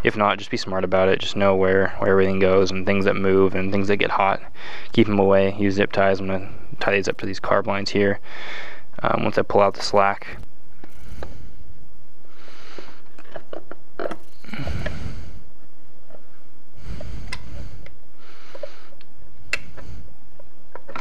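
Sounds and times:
person breathing through nose: 0:04.6 - 0:04.9, 0:08.2 - 0:08.9, 0:10.9 - 0:11.6, 0:12.3 - 0:13.1, 0:14.4 - 0:15.5, 0:16.8 - 0:20.1.

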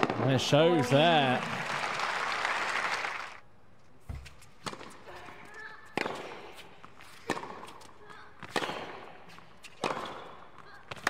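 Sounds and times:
tennis rackets hitting ball: 0:04.1 - 0:11.0.

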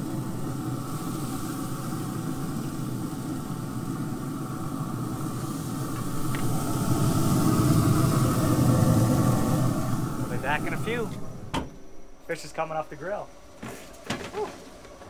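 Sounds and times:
fish sizzling on a grill: 0:00.0 - 0:11.4
thin steady hum: 0:00.0 - 0:14.9.

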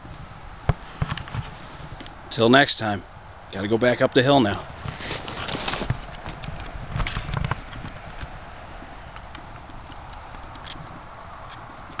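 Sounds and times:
footsteps crunching in snow: 0:00.0 - 0:02.1, 0:04.5 - 0:07.9.

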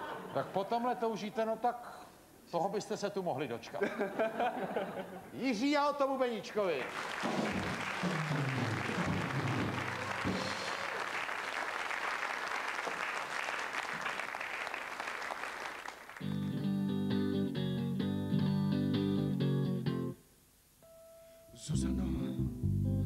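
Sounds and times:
audience applauding: 0:06.8 - 0:16.6
electric guitar strumming chords: 0:16.2 - 0:20.2, 0:20.8 - 0:23.0.

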